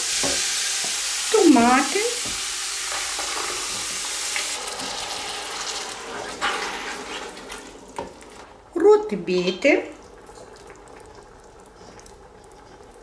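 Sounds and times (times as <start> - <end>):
vegetables sizzling in oil: 0.0 - 10.2.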